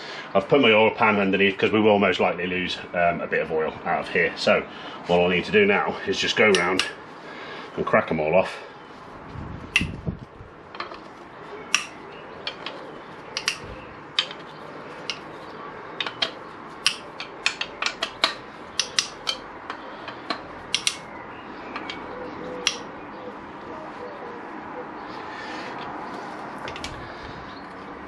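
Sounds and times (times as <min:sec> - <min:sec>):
metal tool clicking on bolts: 0:11.7 - 0:15.3, 0:16.0 - 0:21.1, 0:21.7 - 0:22.9.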